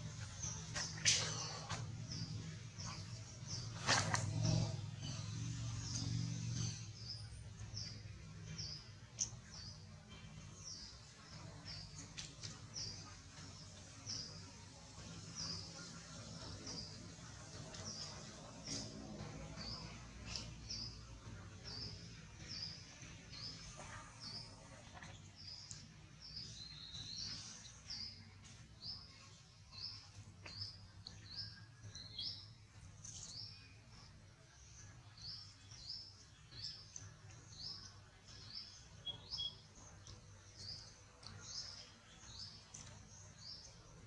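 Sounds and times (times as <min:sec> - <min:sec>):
bird chirping: 0:00.0 - 0:44.0.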